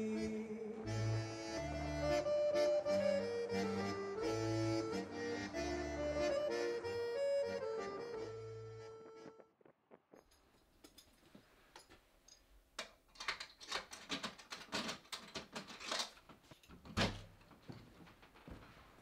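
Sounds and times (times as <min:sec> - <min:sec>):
clicks and rustles of movement: 0:09.2 - 0:19.0.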